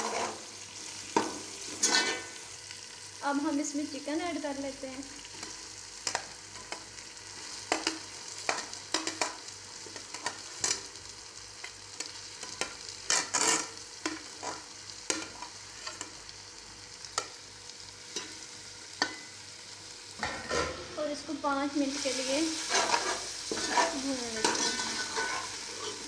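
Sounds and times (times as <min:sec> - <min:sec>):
food sizzling in oil: 0:00.0 - 0:26.0
metal spoon scraping pot: 0:01.7 - 0:02.3, 0:22.6 - 0:26.0.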